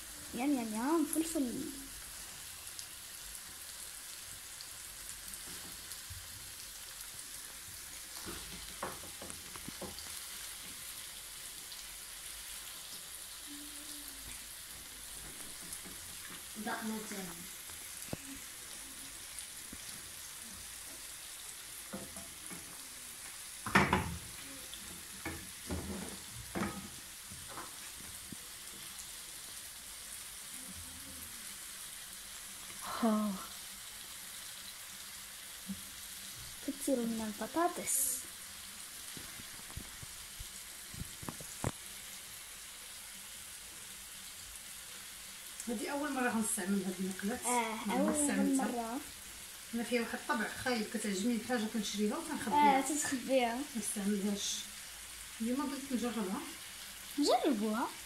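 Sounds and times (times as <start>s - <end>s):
chicken sizzling in a pan: 0.0s - 58.0s.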